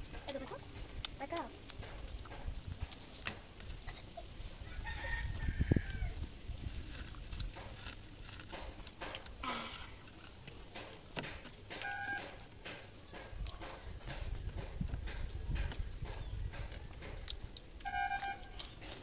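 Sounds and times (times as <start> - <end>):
chickens clucking: 0.1 - 6.2
rooster crowing: 4.6 - 6.2.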